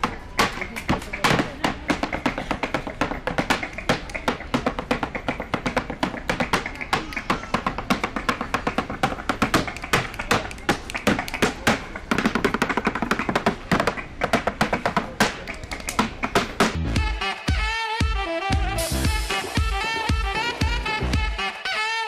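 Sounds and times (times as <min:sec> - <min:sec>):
shoes tapping on dance board: 0:00.0 - 0:17.6
music playing: 0:13.6 - 0:22.0.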